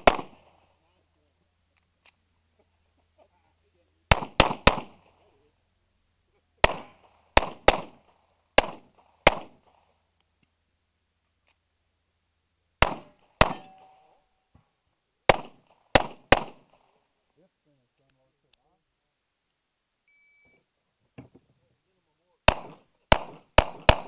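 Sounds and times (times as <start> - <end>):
pistol shots with echo: 0.0 - 0.7, 4.1 - 5.2, 6.6 - 9.7, 12.8 - 14.2, 15.3 - 16.8, 22.5 - 24.0.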